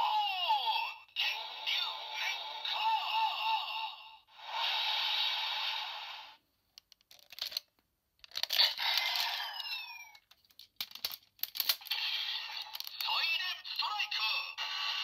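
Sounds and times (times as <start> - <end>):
plastic clicks and snaps: 6.8 - 9.3, 10.1 - 11.9, 12.6 - 13.1.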